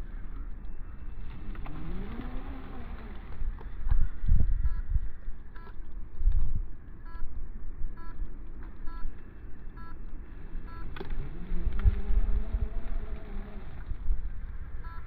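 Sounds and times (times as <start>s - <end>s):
electric motor whining: 0.0s - 4.3s, 10.7s - 14.8s
wind buffeting microphone: 0.0s - 9.6s, 11.2s - 14.9s.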